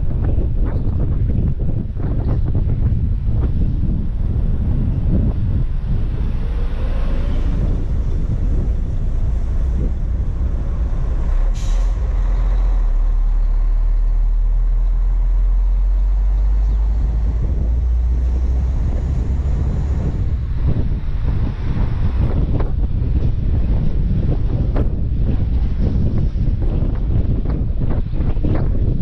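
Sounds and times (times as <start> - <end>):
truck engine and wind rumble: 0.0 - 29.0
air brake hiss: 11.5 - 12.1.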